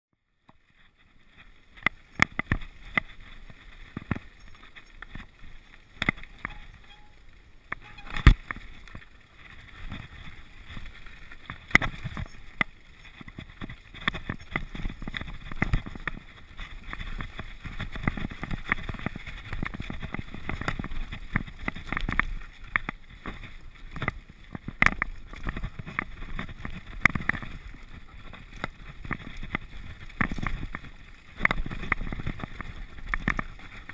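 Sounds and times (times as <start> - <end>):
bike knocking and rattling: 0.4 - 33.9.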